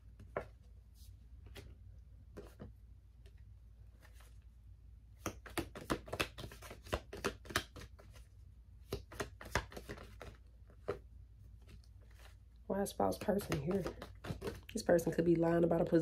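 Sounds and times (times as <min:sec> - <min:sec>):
cards shuffled by hand: 0:05.2 - 0:12.4, 0:13.1 - 0:14.8.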